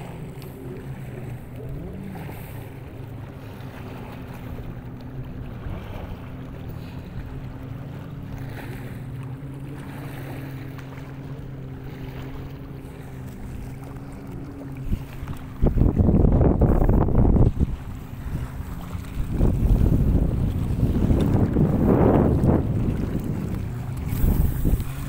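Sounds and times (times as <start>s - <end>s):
engine running steadily: 0.0s - 25.0s
wind noise on microphone: 14.8s - 25.0s.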